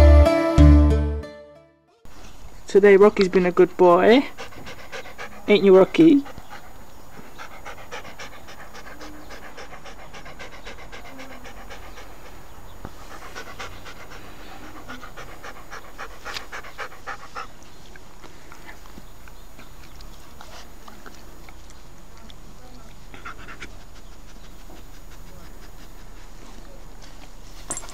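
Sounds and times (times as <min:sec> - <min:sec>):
dog panting: 0:03.3 - 0:27.9.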